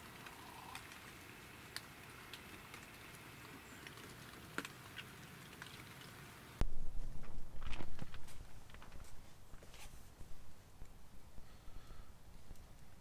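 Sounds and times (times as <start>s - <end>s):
rain pattering: 0.0s - 6.6s.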